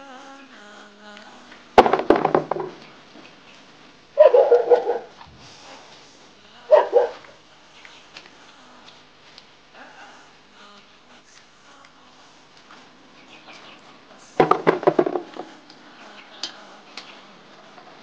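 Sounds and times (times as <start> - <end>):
dog barking: 4.2 - 5.2, 6.7 - 7.3.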